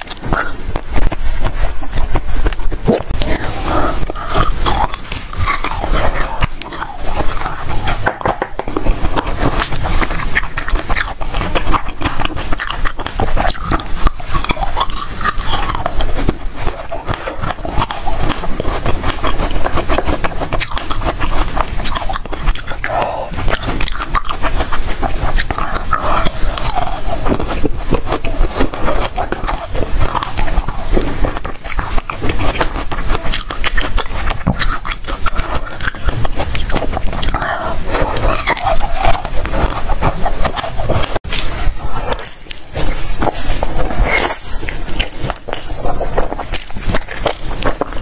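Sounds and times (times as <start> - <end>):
crunching frozen cherries: 0.0 - 48.0.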